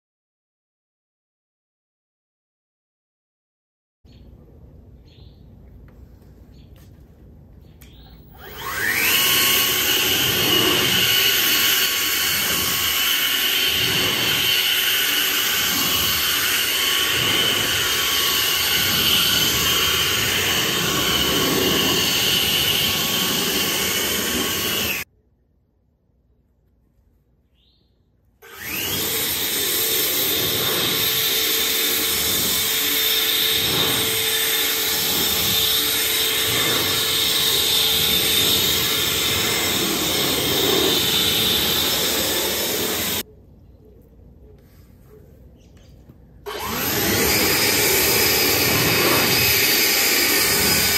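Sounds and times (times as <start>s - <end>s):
leaf blower whining: 7.9s - 25.1s, 28.4s - 43.2s, 46.5s - 50.9s
leaf blower humming: 8.0s - 25.1s, 28.4s - 43.2s, 46.5s - 50.9s.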